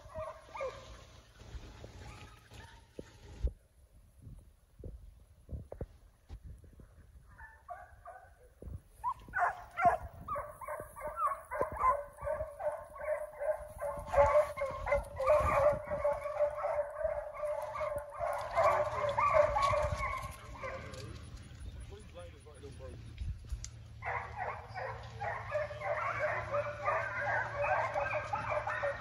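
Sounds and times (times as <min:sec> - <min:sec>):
hounds baying: 0:00.0 - 0:01.0, 0:07.4 - 0:21.2, 0:23.9 - 0:29.0.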